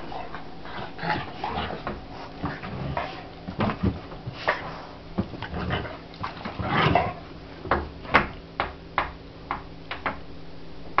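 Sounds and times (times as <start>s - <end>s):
knocks and thumps: 3.5s - 4.4s.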